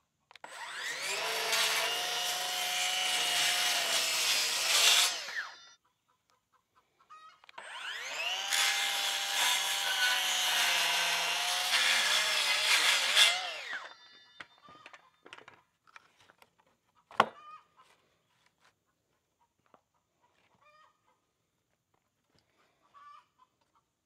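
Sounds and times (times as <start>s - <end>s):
circular saw cutting wood: 0.4s - 5.8s, 7.6s - 14.2s.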